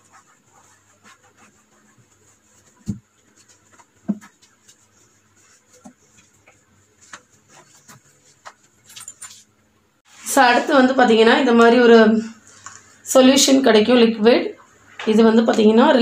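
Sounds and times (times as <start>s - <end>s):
wet sponge rubbing: 0.0s - 10.2s.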